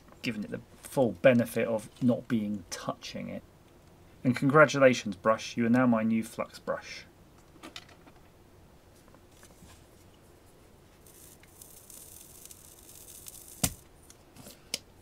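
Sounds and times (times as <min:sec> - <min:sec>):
soldering flux sizzling hiss: 0:10.4 - 0:13.9.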